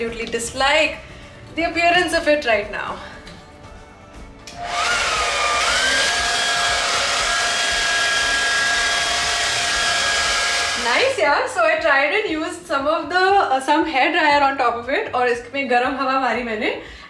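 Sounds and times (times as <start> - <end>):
hair dryer motor whine: 4.5 - 11.2.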